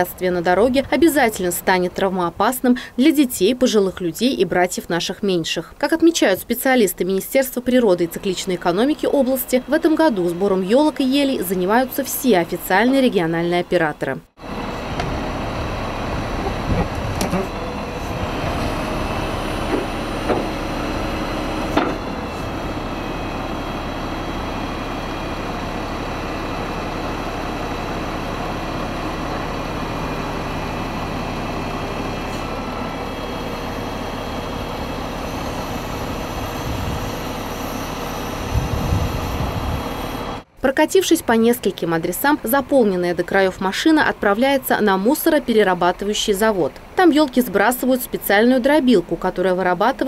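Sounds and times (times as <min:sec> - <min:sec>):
truck engine running: 0:07.6 - 0:40.5
crane grapple knocks and clanks: 0:16.2 - 0:18.8, 0:19.5 - 0:21.0, 0:21.6 - 0:22.6.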